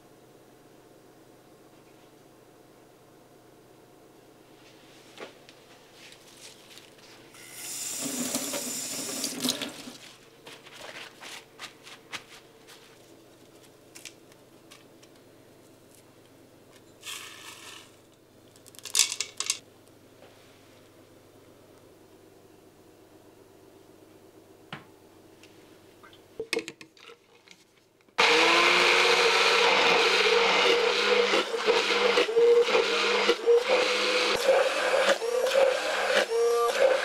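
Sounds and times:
tap water running: 7.6 - 10.0.

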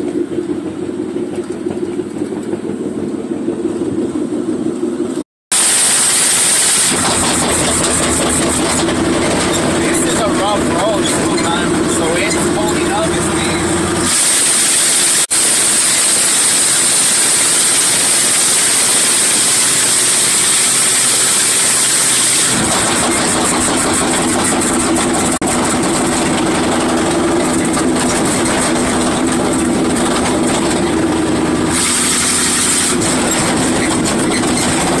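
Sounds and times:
truck engine running: 0.0 - 35.0
loud steady hiss: 5.5 - 7.0.

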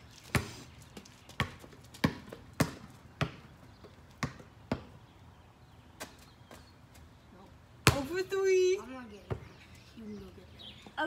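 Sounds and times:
basketball bouncing on pavement: 0.0 - 5.1, 6.0 - 7.0, 7.8 - 9.6.

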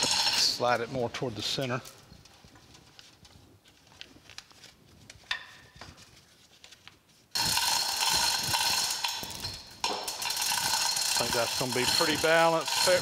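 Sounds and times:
chain hoist rattling: 0.0 - 0.8, 7.4 - 13.0.

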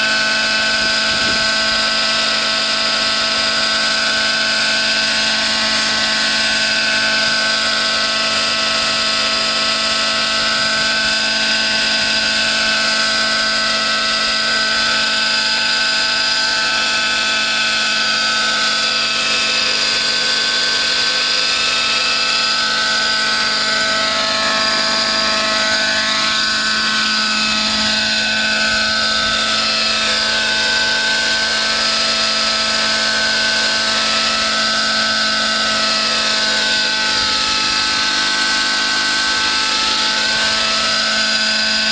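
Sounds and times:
model helicopter hovering: 0.0 - 41.9.

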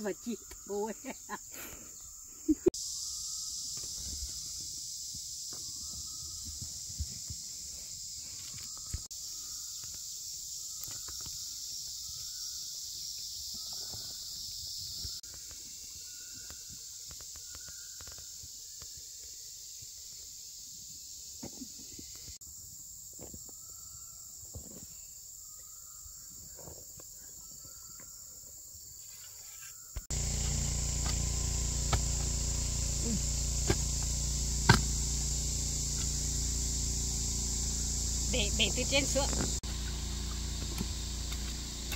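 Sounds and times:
insects droning: 0.0 - 41.9
short insect chirp: 0.0 - 41.9.

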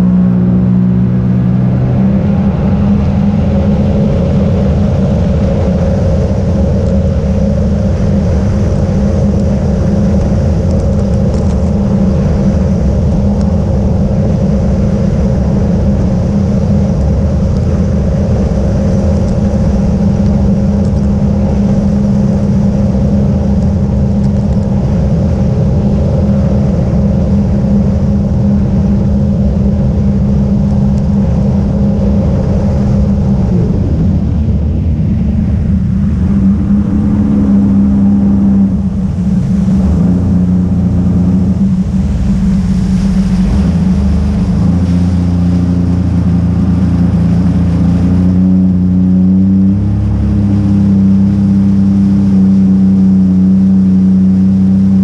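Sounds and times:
jet ski engine droning: 0.0 - 55.0.

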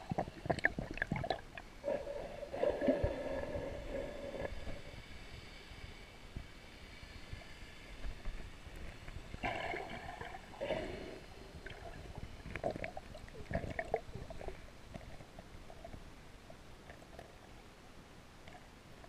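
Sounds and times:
water gurgling and bubbling: 0.0 - 4.9, 9.4 - 14.6
muffled underwater rumbling: 0.0 - 5.2.

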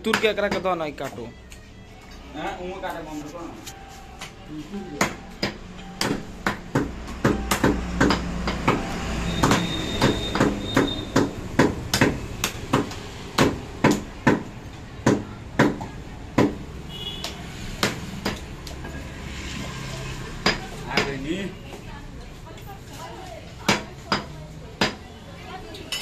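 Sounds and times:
cleaver chopping meat and bone: 5.0 - 18.8, 20.4 - 21.2, 23.6 - 25.0.

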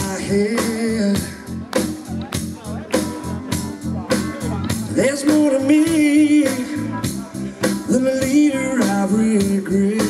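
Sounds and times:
male voice singing: 0.0 - 1.6, 4.2 - 10.0
blues-rock band playing live: 0.0 - 10.0.

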